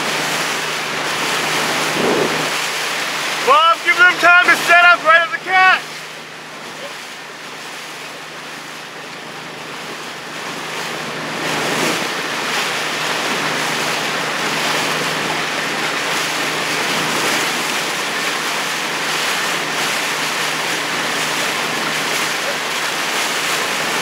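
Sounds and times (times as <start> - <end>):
water splashing alongside a boat: 0.0 - 24.0
wind buffeting microphone: 1.7 - 2.6.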